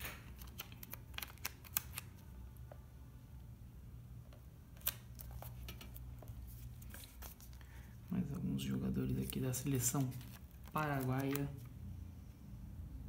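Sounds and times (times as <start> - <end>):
sharp paper clicks: 0.0 - 2.1.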